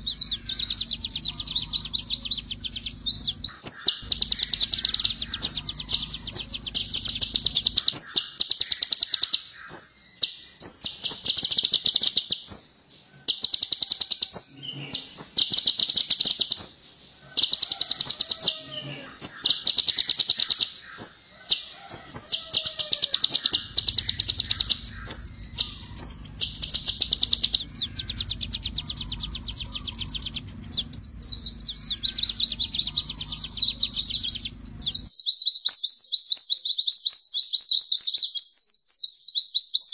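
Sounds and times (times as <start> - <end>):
low hum: 0.0 - 8.4, 23.2 - 35.1
bird singing rapid trills: 0.0 - 36.0.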